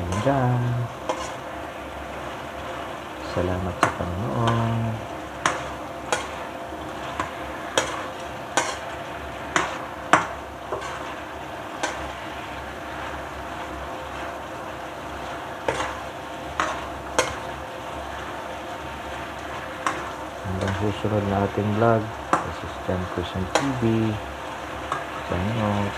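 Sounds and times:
food sizzling in a wok: 0:00.0 - 0:25.9
metal ladle scraping and knocking pan: 0:01.0 - 0:01.4, 0:05.4 - 0:06.5, 0:07.1 - 0:08.9, 0:09.5 - 0:11.2, 0:15.7 - 0:16.0, 0:16.6 - 0:17.5.

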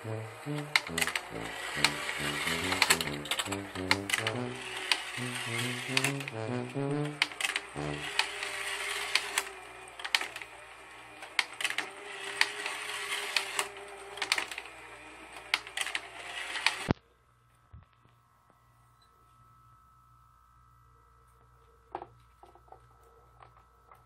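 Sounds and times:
toy melody: 0:00.0 - 0:09.4
toy motor whirring: 0:00.1 - 0:16.9
toy mechanism clicking and rattling: 0:00.5 - 0:06.4, 0:07.0 - 0:16.9.

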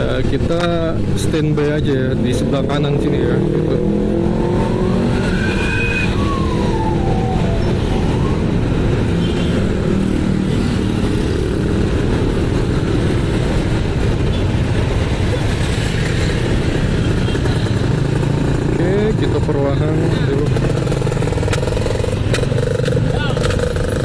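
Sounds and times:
motorcycle engines idling: 0:15.9 - 0:24.0.

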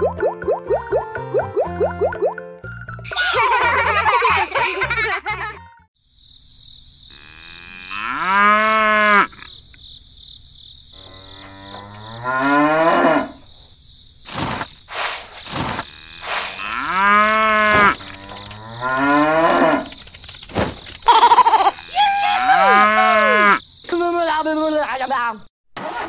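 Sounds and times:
cow mooing: 0:07.1 - 0:09.3, 0:11.0 - 0:13.4, 0:15.9 - 0:19.9, 0:22.6 - 0:23.6
sharp clicks: 0:16.6 - 0:21.1.

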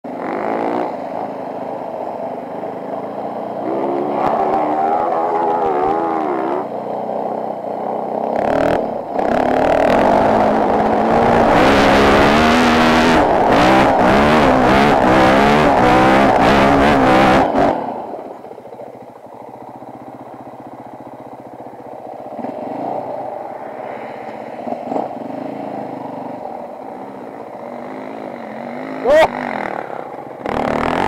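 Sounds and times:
dirt bike engine revving: 0:00.1 - 0:18.5, 0:19.5 - 0:31.0.

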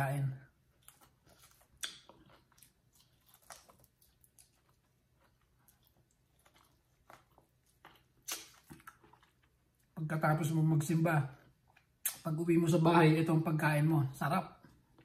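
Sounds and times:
chewing corn on the cob: 0:00.5 - 0:10.0
wet mouth clicks and smacks: 0:01.7 - 0:02.4, 0:07.8 - 0:09.4, 0:11.8 - 0:12.3.

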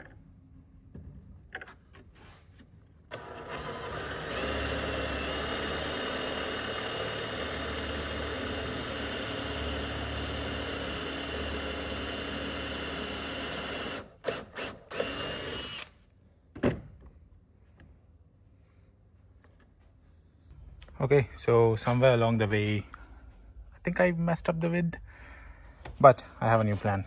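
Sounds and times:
cordless drill boring into wood: 0:03.1 - 0:16.0.

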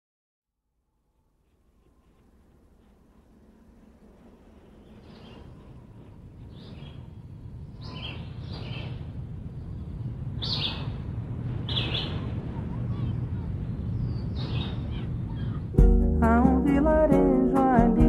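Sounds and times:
bird chirping: 0:04.6 - 0:15.8.

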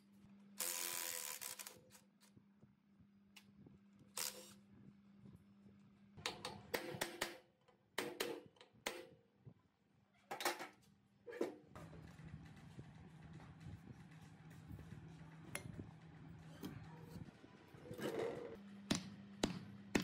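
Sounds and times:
hammer knocks on metal motor cover: 0:18.9 - 0:20.0.

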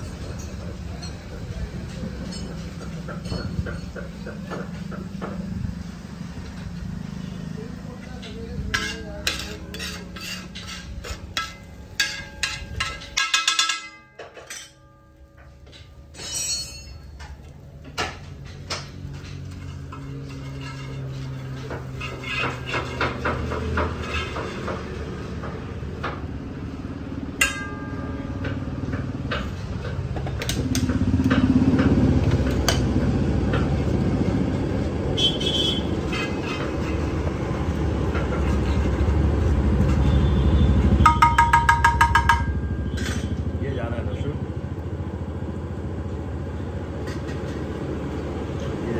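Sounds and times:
metal utensils clinking on pan: 0:07.9 - 0:25.2, 0:41.0 - 0:43.4.

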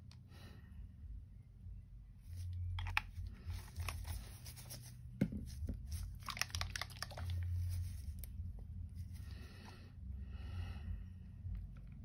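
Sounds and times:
low steady hum: 0:00.0 - 0:12.0
plastic bottles clicking and rattling: 0:05.2 - 0:08.0.

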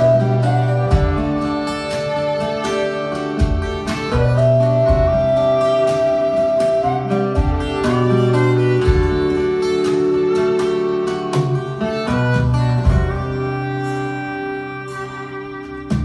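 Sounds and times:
low thuds on the beat: 0:00.0 - 0:01.8, 0:03.3 - 0:10.3, 0:11.4 - 0:13.7
folk band playing: 0:00.0 - 0:16.0.

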